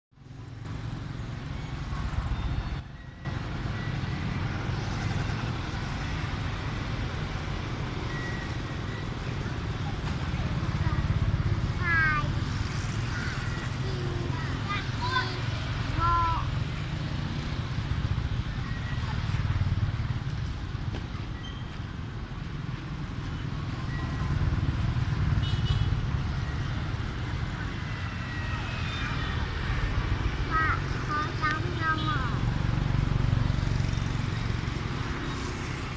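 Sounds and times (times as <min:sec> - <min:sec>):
road traffic rumble: 0:00.1 - 0:35.9
faint high chirp: 0:21.3 - 0:21.8.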